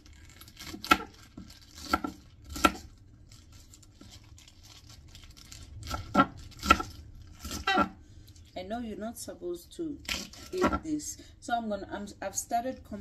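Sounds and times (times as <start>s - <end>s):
knife chopping on wooden board: 1.8s - 2.8s.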